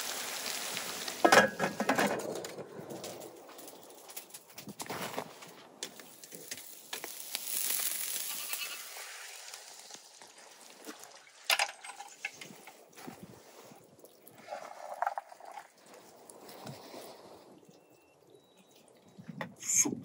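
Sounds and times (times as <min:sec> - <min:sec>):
fish sizzling over charcoal: 0:00.0 - 0:02.1, 0:05.9 - 0:12.7.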